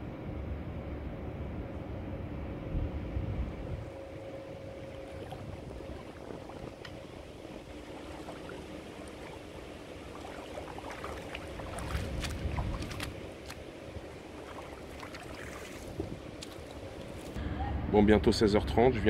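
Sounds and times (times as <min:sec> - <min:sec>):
steady low rumble: 0:00.0 - 0:19.0
wading through shallow water: 0:03.8 - 0:17.4.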